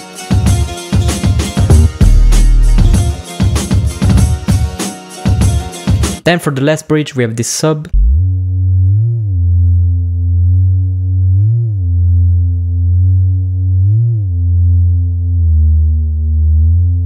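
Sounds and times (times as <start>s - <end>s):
synthesized sub bass with glides: 1.7s - 3.1s, 7.9s - 17.0s.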